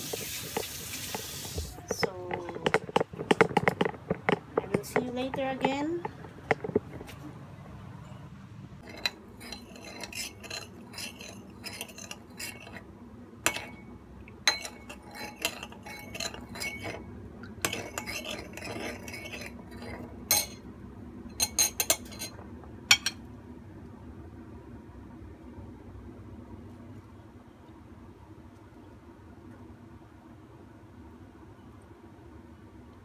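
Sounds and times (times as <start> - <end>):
ladle clinking against ceramic bowl: 13.5 - 13.9, 14.5 - 17.0, 17.6 - 20.6, 21.3 - 23.2.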